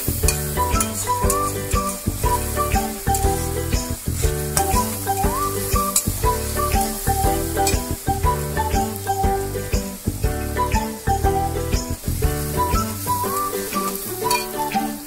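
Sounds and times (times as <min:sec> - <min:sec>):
background music: 0:00.0 - 0:15.0
onions sizzling in hot oil: 0:00.0 - 0:15.0
metal spatula scraping pan: 0:14.2 - 0:14.5.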